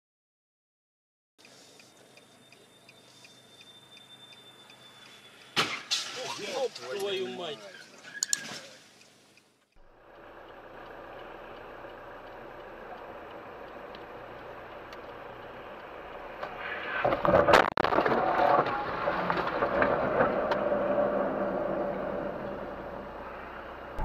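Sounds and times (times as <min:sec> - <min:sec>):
wet tyres and rain hiss: 0:01.4 - 0:17.2, 0:18.2 - 0:24.0
loud car crash: 0:05.5 - 0:06.7, 0:16.7 - 0:22.8.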